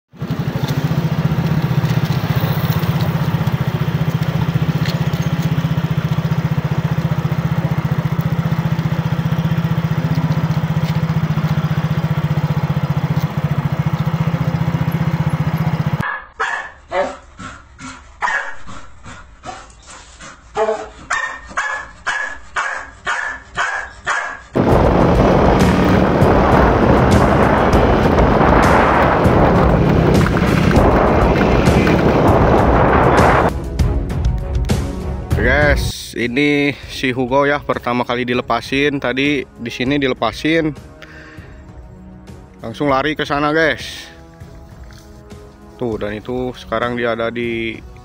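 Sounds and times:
dog barking: 0:16.0 - 0:17.2, 0:18.2 - 0:18.7, 0:20.6 - 0:24.5
low drone: 0:24.6 - 0:33.9.

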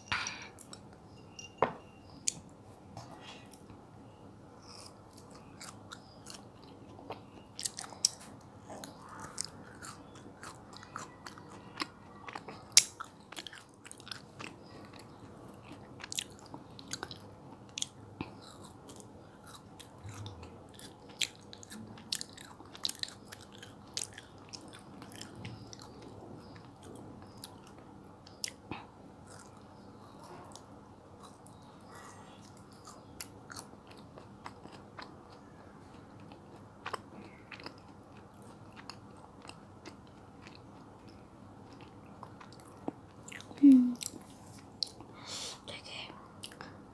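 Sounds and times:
wet chewing clicks and smacks: 0:08.8 - 0:28.6, 0:29.3 - 0:45.1.

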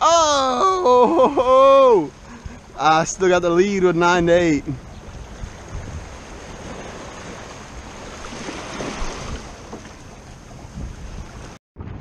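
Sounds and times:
wind noise on microphone: 0:01.1 - 0:12.0
waves splashing against rocks: 0:05.2 - 0:11.6.

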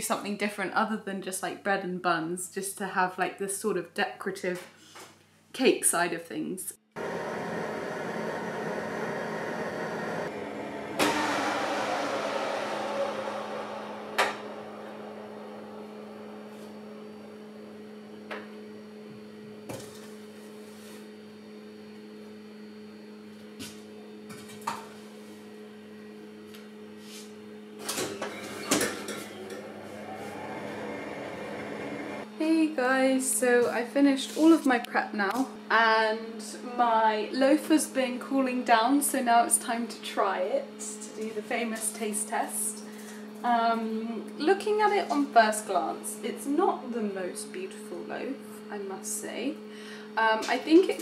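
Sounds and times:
rush of air: 0:07.0 - 0:17.8, 0:29.0 - 0:32.3
oven fan humming: 0:07.0 - 0:20.5, 0:27.5 - 0:32.6.

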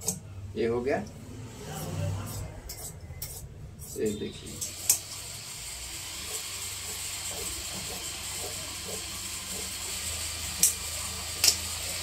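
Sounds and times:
shears snipping fabric: 0:10.5 - 0:12.0.

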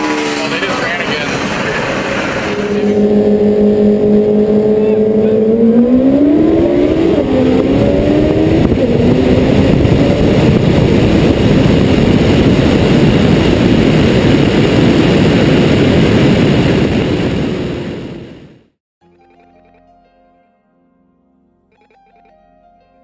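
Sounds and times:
car engine accelerating: 0:00.0 - 0:17.1
rushing wind: 0:00.0 - 0:18.8.

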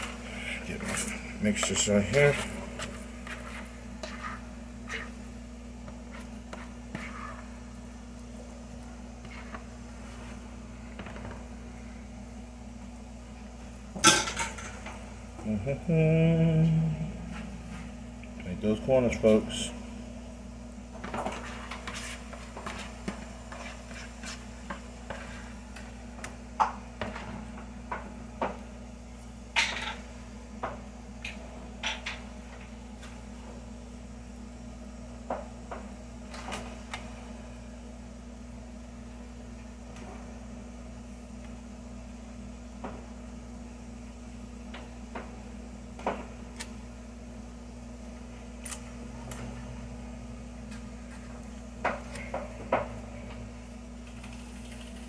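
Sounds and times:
low hum: 0:00.0 - 0:29.1.

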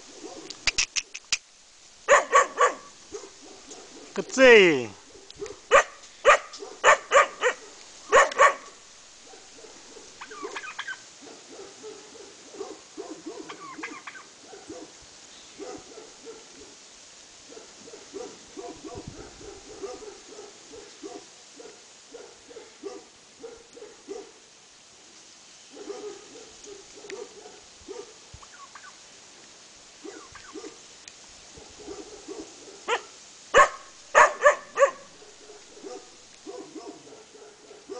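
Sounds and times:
puppy barking: 0:00.2 - 0:00.5, 0:02.1 - 0:04.2, 0:05.1 - 0:15.0, 0:15.6 - 0:16.8, 0:17.5 - 0:24.4, 0:25.7 - 0:28.2, 0:30.0 - 0:30.8, 0:31.6 - 0:37.9
turkey gobbling: 0:09.5 - 0:11.0, 0:13.4 - 0:14.3, 0:28.4 - 0:29.0, 0:30.1 - 0:30.7.

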